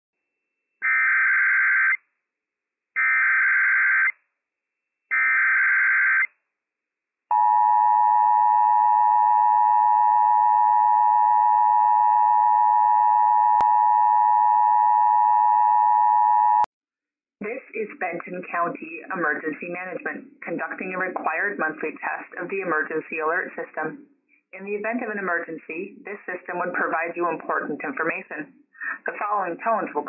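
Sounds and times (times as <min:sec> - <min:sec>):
long steady alert tone: 0:07.3 - 0:16.7.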